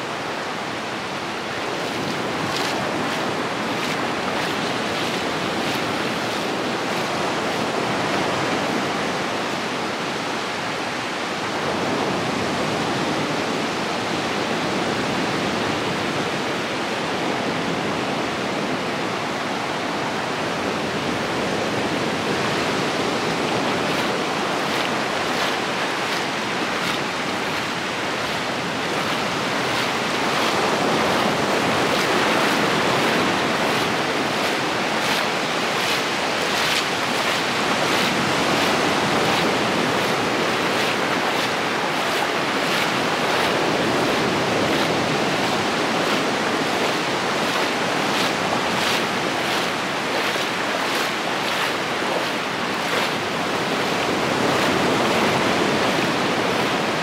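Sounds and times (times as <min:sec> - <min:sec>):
small waves washing on sand: 0:00.0 - 0:57.0.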